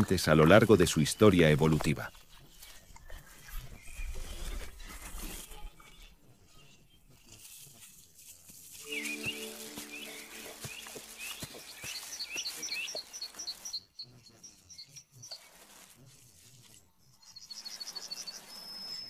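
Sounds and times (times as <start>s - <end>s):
piglets rooting through dry leaves: 0.0s - 19.0s
birds chirping and trilling: 8.9s - 15.4s.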